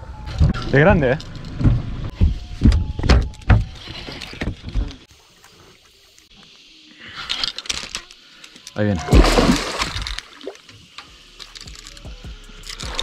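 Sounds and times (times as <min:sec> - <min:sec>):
water splash: 0:09.0 - 0:10.7.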